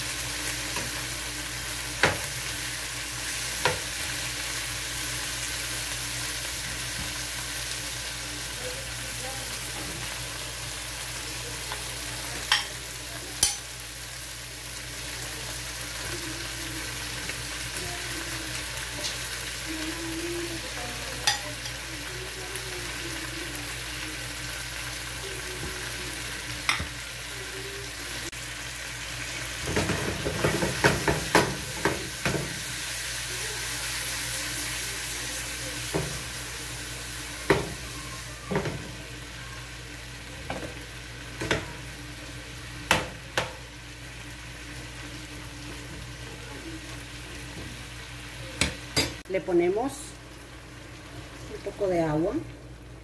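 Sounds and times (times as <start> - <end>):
food sizzling in a frying pan: 0.0 - 53.0
food clattering in pan: 29.6 - 32.6.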